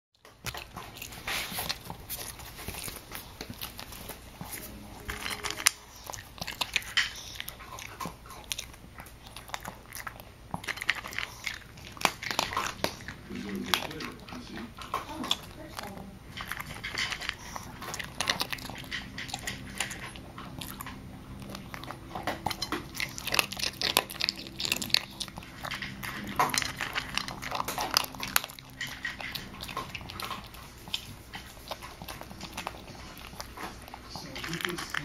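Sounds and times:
dog crunching food: 0.2s - 35.0s.

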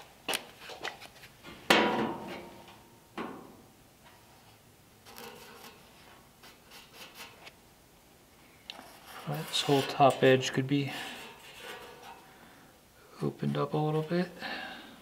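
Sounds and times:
faint scratching and rubbing: 5.0s - 7.5s, 8.7s - 12.3s.

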